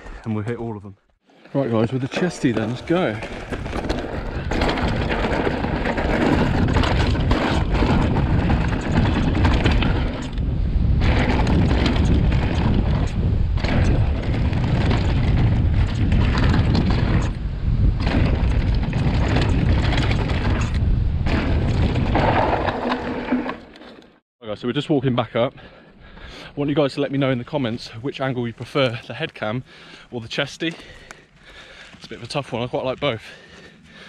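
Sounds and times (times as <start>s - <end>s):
tyres rumbling over dirt: 1.4s - 24.1s
bike rattling and knocking: 1.7s - 23.9s
wind buffeting microphone: 2.4s - 22.8s.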